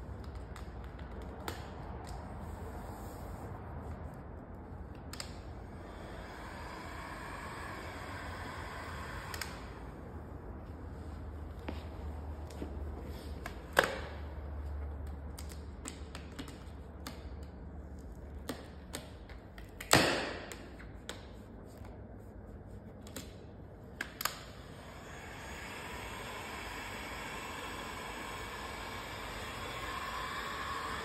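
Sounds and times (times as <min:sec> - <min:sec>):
heat gun blowing hiss: 0:05.8 - 0:09.9, 0:24.6 - 0:31.0.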